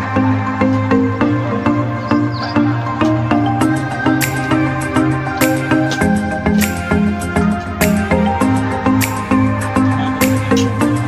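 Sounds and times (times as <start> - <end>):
background music with pulsing notes: 0.0 - 11.0.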